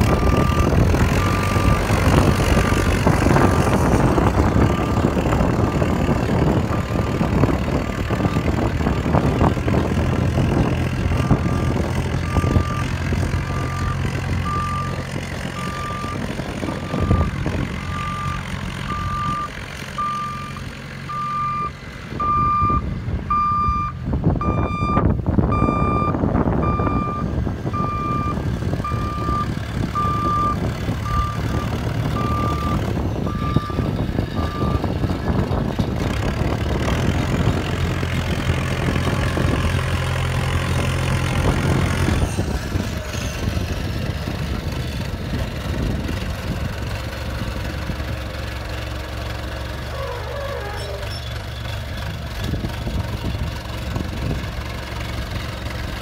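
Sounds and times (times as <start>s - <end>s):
reversing alarm beeping: 0.0s - 1.9s, 16.9s - 34.9s
diesel engine running: 0.0s - 56.0s.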